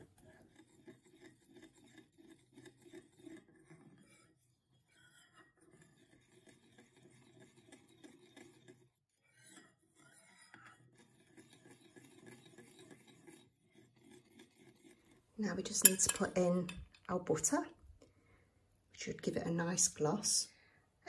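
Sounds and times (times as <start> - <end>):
metal spoon scraping ceramic bowl: 0.0 - 17.6.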